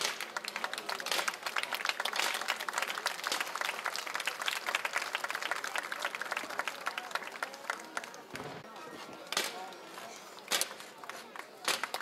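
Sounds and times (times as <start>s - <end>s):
crowd applauding: 0.0s - 8.4s.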